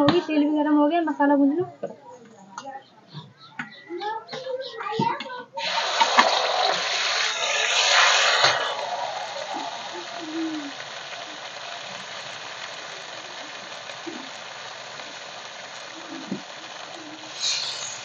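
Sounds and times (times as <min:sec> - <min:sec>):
hot oil hissing: 0:05.6 - 0:18.0.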